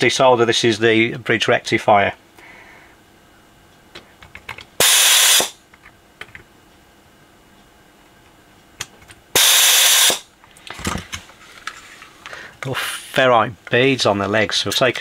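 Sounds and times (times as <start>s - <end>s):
desoldering pump hissing: 4.8s - 5.6s, 9.4s - 10.2s.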